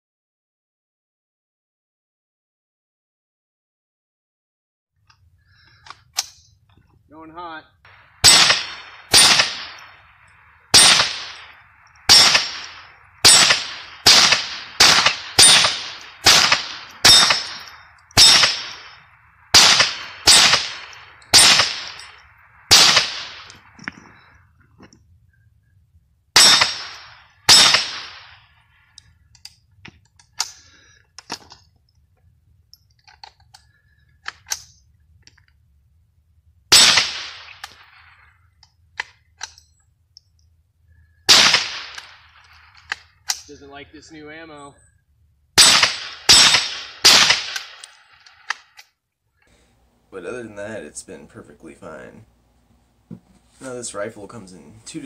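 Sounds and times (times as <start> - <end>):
rifle shots with echo: 7.9 - 24.0, 26.4 - 28.6, 36.7 - 38.1, 41.3 - 42.7, 45.6 - 48.5
rifle handling clicks: 28.9 - 31.7, 32.7 - 35.6, 41.9 - 43.5, 47.5 - 49.0.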